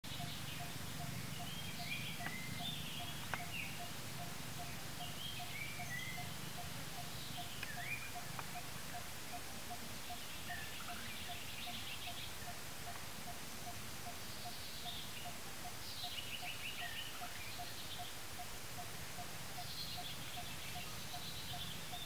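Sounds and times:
birds chirping and whistling: 0.1s - 9.0s
steady low hum: 0.1s - 16.0s.

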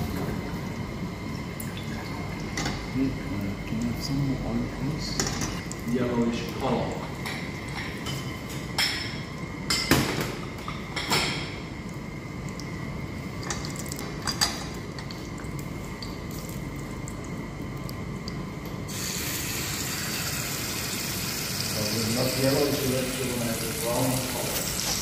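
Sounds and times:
utensils and dishes clinking: 7.2s - 11.6s, 13.4s - 15.1s.

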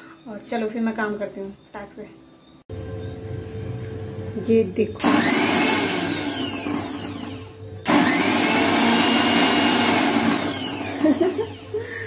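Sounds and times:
mixer grinder motor: 2.7s - 12.0s.

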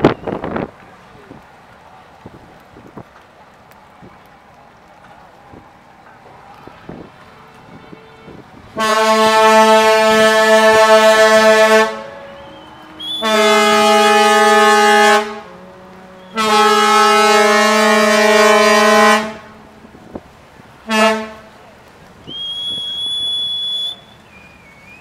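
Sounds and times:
ship's horn blasts: 6.9s - 20.2s, 20.8s - 21.6s.

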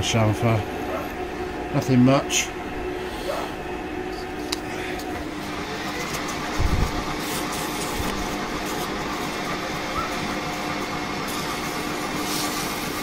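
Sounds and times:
lathe running: 0.0s - 13.0s.

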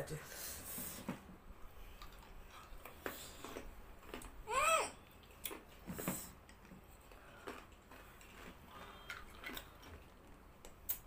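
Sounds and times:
mouth clicks and lip smacks: 10.6s - 11.0s.

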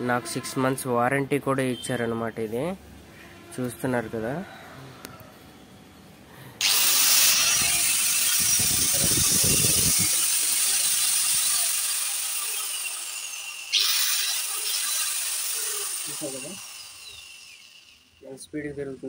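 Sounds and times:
angle grinder high whine: 6.6s - 19.0s.

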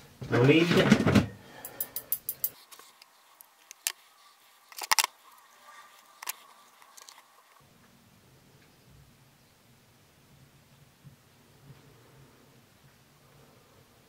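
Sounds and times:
metal tweezers working: 1.6s - 4.0s, 4.6s - 5.4s.

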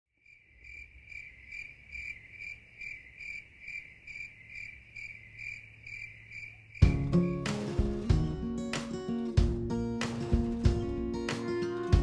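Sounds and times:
insect chirping: 0.2s - 7.6s.

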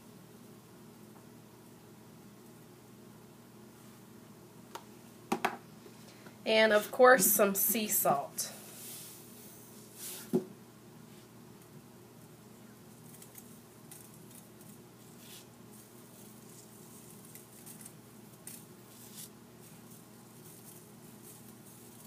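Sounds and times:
faint steady hum: 0.0s - 22.0s
salt sprinkling on potatoes: 12.9s - 22.0s.

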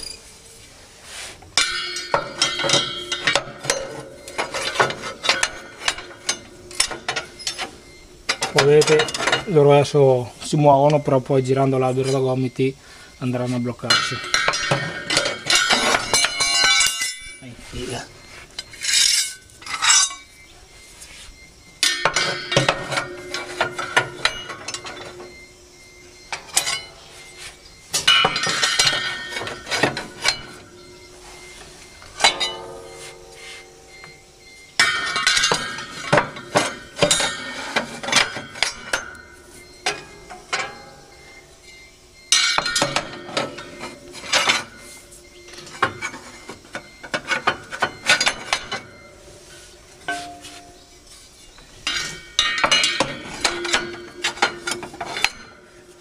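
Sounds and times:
metallic ringing: 0.0s - 0.6s, 1.4s - 56.0s
steel knives clinking and scraping: 1.6s - 7.7s, 13.9s - 17.5s, 18.5s - 20.4s.

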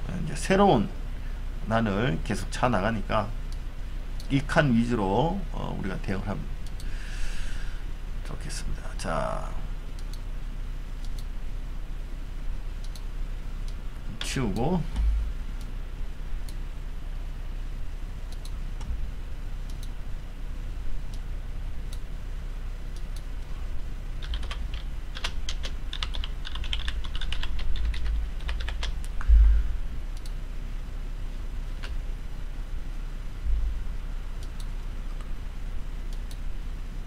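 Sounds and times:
steady low hum: 0.0s - 37.0s
low thump: 15.0s - 15.4s, 29.2s - 29.7s
typing on computer keyboard: 24.2s - 29.1s.

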